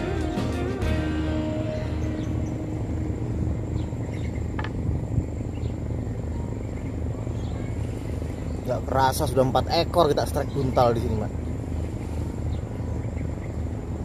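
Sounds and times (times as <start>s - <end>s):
low outdoor rumble: 0.0s - 14.0s.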